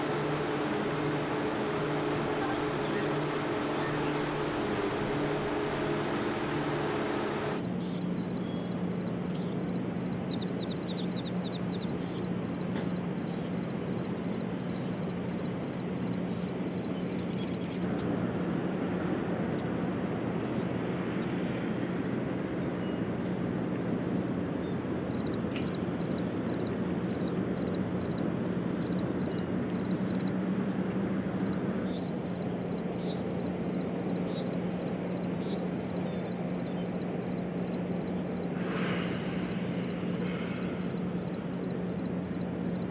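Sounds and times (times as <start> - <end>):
rapid high-pitched chirping: 0.0 - 7.7
steady low hum: 0.0 - 8.0, 16.8 - 42.9.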